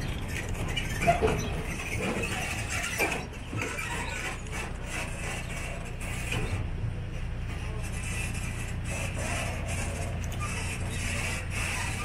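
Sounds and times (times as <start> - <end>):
carriage rattles and knocks: 0.0 - 6.6
train engine hum: 0.0 - 12.0.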